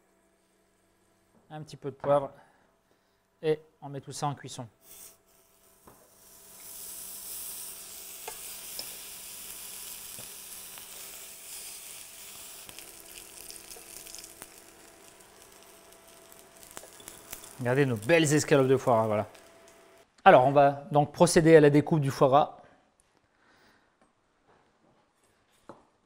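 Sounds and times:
meat sizzling in a frying pan: 4.9s - 20.0s.

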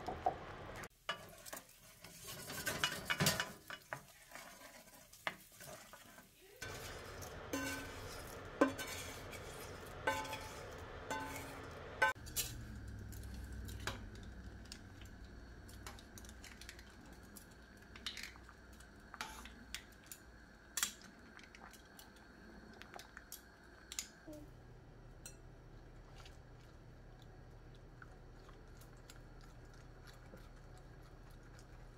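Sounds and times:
utensils clinking against pans: 1.0s - 4.8s, 6.6s - 14.3s
faint steady hum: 6.6s - 31.9s.

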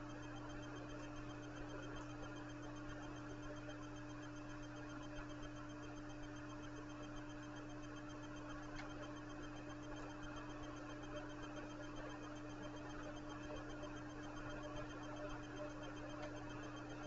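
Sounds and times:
low electrical hum: 0.0s - 17.0s
faint click: 8.7s - 9.0s.

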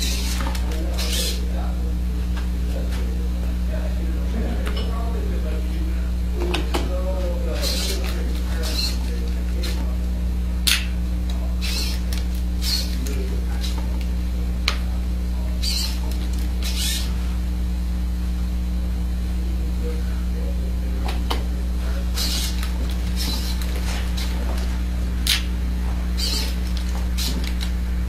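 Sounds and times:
low electrical hum: 0.0s - 28.0s
servos buzzing: 0.0s - 28.0s
sharp click: 10.6s - 13.1s, 25.2s - 25.5s.

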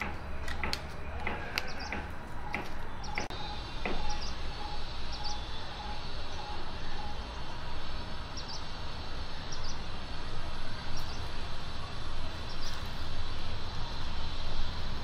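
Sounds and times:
small bird chirping: 2.9s - 7.4s.

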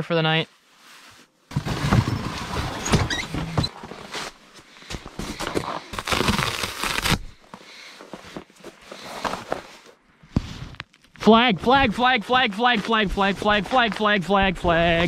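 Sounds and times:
foam mats rustling: 1.0s - 10.8s
foam squeaking: 2.0s - 3.8s.

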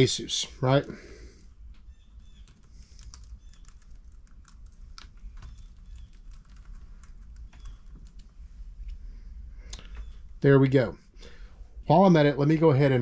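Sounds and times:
computer keyboard typing: 2.3s - 8.3s.

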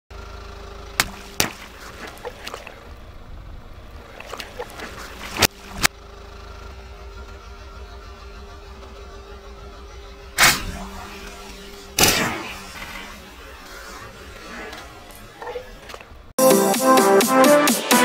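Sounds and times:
car engine humming: 0.1s - 17.0s
water balloons bursting: 0.9s - 3.1s, 10.4s - 16.2s
splashes and crackles: 1.0s - 2.8s, 4.0s - 5.9s.

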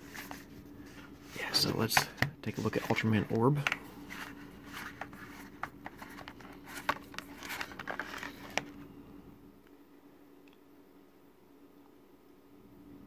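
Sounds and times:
hands handling plastic case: 0.1s - 8.8s.

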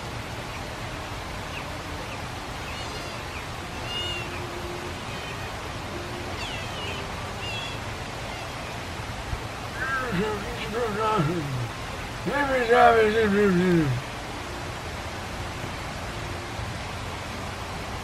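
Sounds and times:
otters chirping: 9.7s - 11.8s.

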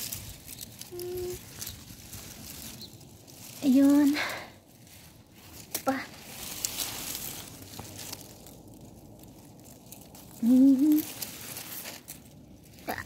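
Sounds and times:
plant leaves rustling: 0.0s - 13.0s
person humming: 0.8s - 1.5s, 10.4s - 11.1s.

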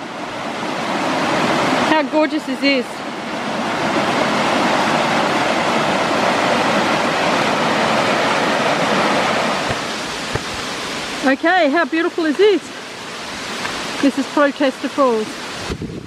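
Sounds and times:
creek water rushing over rocks: 0.0s - 16.0s.

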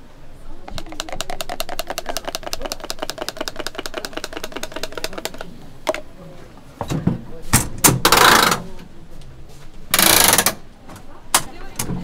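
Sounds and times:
batter dispenser clicking: 0.7s - 6.0s.

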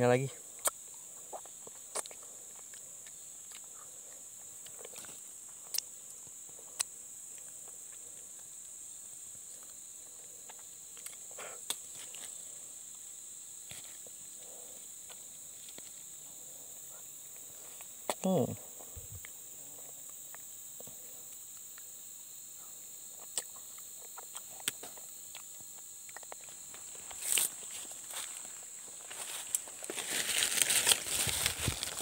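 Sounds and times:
insects droning: 0.0s - 32.0s
husk clicking and rustling: 29.6s - 32.0s.

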